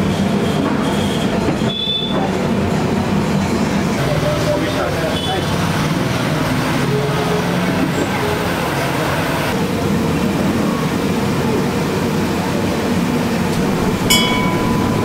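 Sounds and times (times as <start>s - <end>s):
street rumble: 2.4s - 15.0s
metallic clink: 13.6s - 15.0s.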